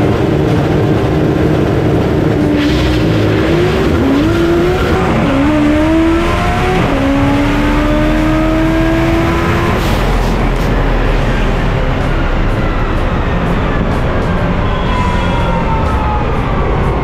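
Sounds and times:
car engine accelerating with upshifts: 0.0 - 15.7.

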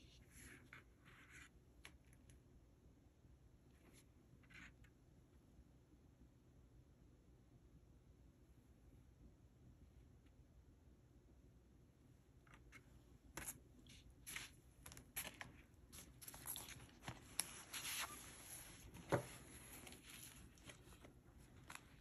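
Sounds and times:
paper and plastic rustling: 13.4 - 22.0.

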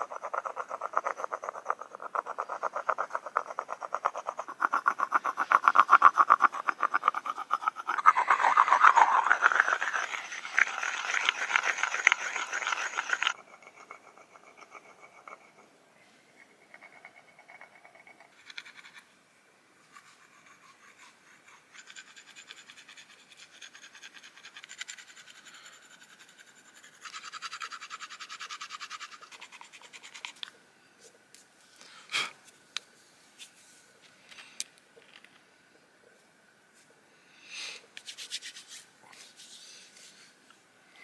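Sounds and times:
stone rubbing on stone: 0.0 - 15.7, 19.9 - 30.4.

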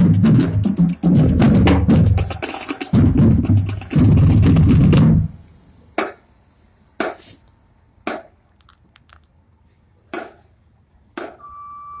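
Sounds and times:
drum hits: 0.0 - 5.4
steady beep: 11.4 - 12.0.

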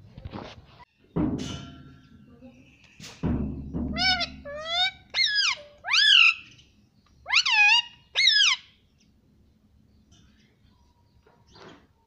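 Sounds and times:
parakeet calls: 3.9 - 6.5, 7.2 - 8.7.

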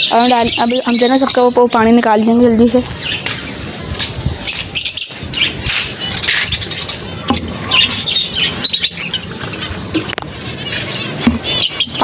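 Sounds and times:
caged birds chirping: 0.0 - 12.0.

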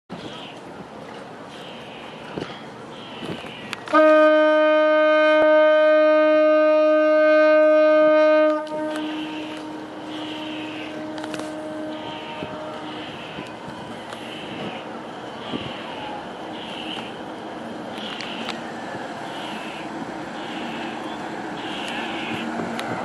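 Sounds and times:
steady background noise: 0.1 - 4.1, 8.4 - 23.0
ship's horn long blast: 3.9 - 13.5.

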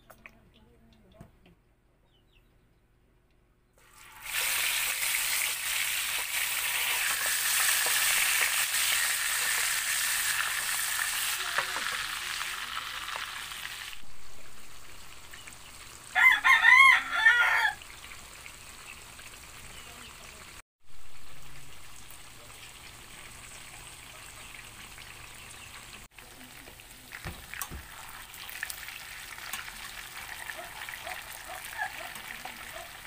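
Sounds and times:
fish sizzling in hot oil: 3.8 - 33.0
rooster crowing: 16.1 - 17.8.

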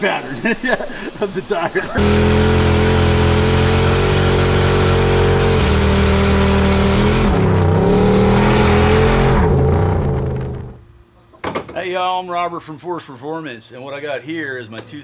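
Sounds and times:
engine revving high: 2.0 - 10.8.

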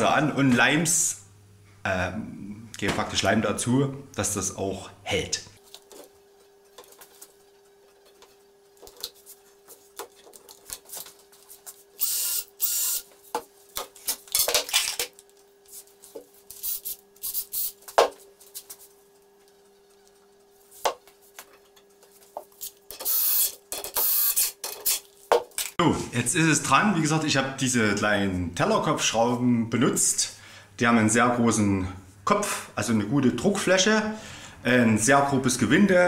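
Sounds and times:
faint steady hum: 0.0 - 36.0
cordless drill-driver running: 12.0 - 13.1, 16.6 - 17.8, 22.9 - 24.6.

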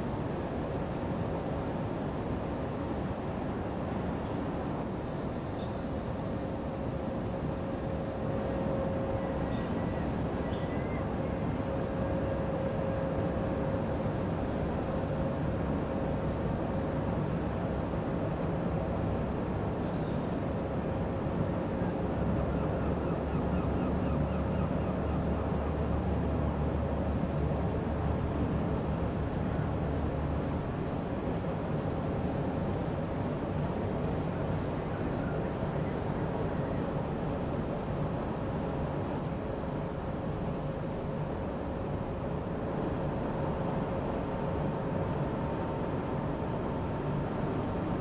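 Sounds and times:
faint steady hum: 0.0 - 48.0.

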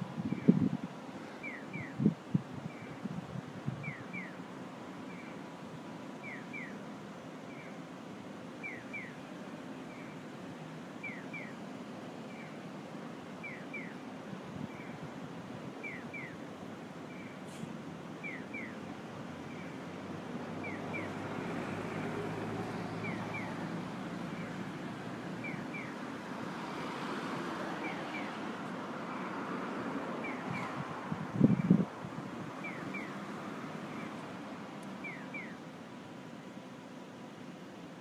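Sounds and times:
street traffic noise: 0.0 - 38.0
pedestrian crossing signal chirping: 1.4 - 3.1, 3.8 - 4.4, 6.2 - 6.9, 8.6 - 9.3, 11.0 - 11.6, 13.4 - 14.0, 15.8 - 17.4, 18.2 - 19.8, 20.6 - 21.2, 22.9 - 24.6, 25.4 - 26.1, 27.7 - 28.4, 30.2 - 31.9, 32.5 - 34.2, 34.9 - 35.7.

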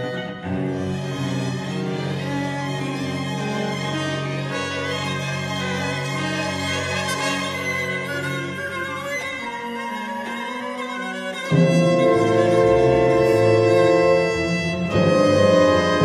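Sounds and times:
symphony orchestra playing: 0.0 - 16.0.

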